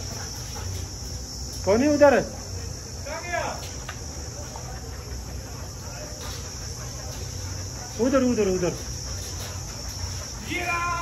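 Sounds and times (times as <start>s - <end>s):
insect chirring: 0.0s - 11.0s
man calling: 10.4s - 11.0s.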